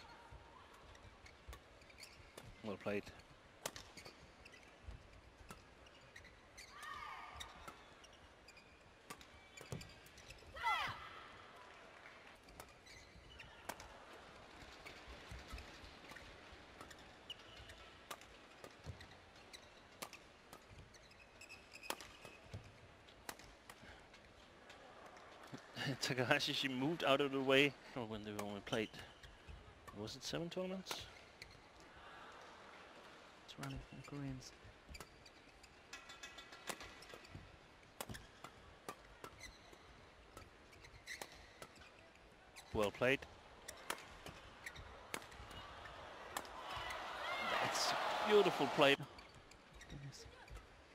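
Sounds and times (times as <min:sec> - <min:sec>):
shoe squeaks on court floor: 0:01.2 - 0:10.4, 0:12.5 - 0:13.8, 0:14.7 - 0:17.9, 0:18.8 - 0:22.8, 0:33.6 - 0:37.4, 0:39.2 - 0:42.9, 0:43.7 - 0:46.0
racket hitting shuttlecock: 0:18.1 - 0:19.0, 0:21.8 - 0:22.6, 0:23.2 - 0:23.8, 0:36.6 - 0:39.4, 0:45.1 - 0:45.6
racket striking shuttlecock: 0:45.1 - 0:45.5.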